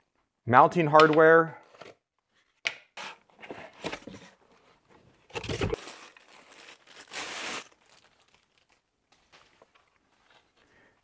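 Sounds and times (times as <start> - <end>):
cardboard and packing material rustling: 3.4 - 10.5.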